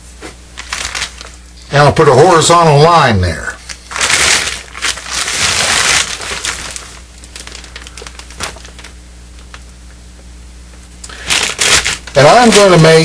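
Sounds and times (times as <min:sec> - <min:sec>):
plastic tarp crinkling: 0:00.6 - 0:01.4, 0:03.7 - 0:09.6, 0:11.1 - 0:13.0.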